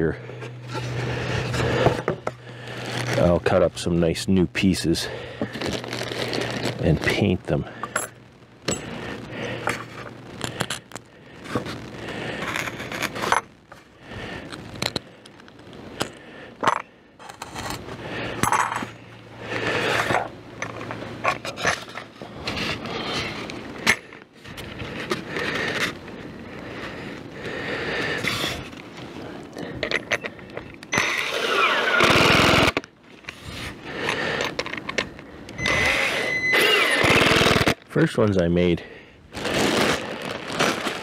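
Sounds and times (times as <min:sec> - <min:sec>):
foam panels scraping and rubbing: 0:11.4 - 0:13.5, 0:20.9 - 0:23.5, 0:39.3 - 0:41.0.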